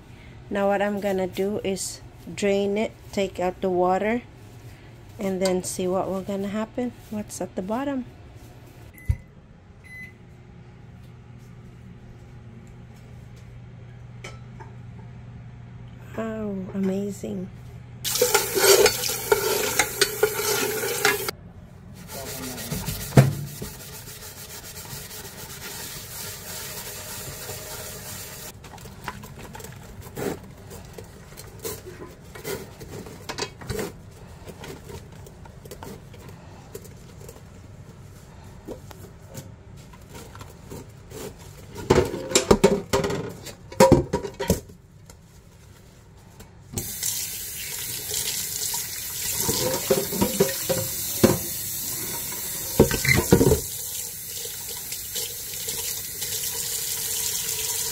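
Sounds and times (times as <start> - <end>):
scrubbing pot in soapy water: 18.1 - 21.3, 22.0 - 33.0, 47.7 - 57.9
tap water running into pot: 18.1 - 21.3, 25.7 - 28.5, 46.8 - 57.9.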